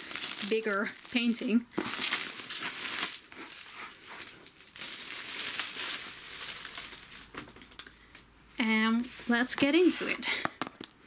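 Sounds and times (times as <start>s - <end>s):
plastic shrink wrap crinkling: 0.0s - 7.9s.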